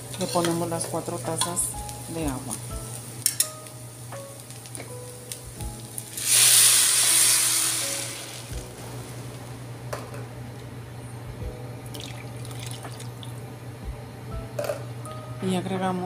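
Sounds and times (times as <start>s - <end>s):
water hissing in hot pan: 4.3s - 9.3s.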